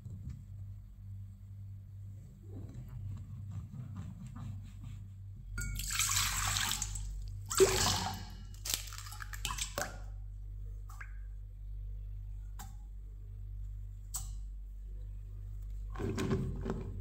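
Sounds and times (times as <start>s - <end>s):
water poured into metal bowl: 5.8s - 9.9s
egg cracking: 8.4s - 9.8s.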